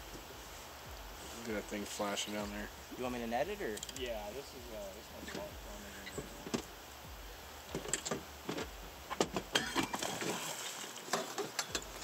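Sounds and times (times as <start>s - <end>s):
fish thrashing and splashing: 9.5s - 12.0s.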